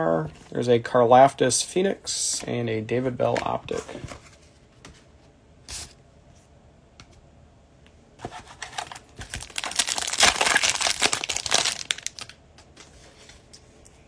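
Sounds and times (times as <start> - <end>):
wrapper crinkling: 8.6 - 12.4
foil pack tearing: 8.8 - 12.3.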